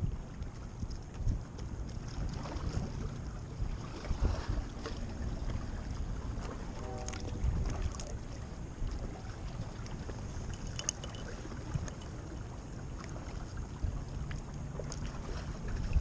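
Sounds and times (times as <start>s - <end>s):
water lapping at a hull: 0.0s - 16.0s
wind on microphone: 0.0s - 16.0s
faint ticks: 9.8s - 12.2s.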